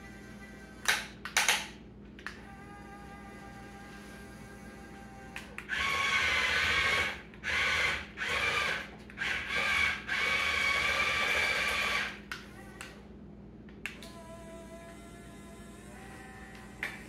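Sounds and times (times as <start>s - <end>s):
toy electric motors whining: 2.6s - 12.6s.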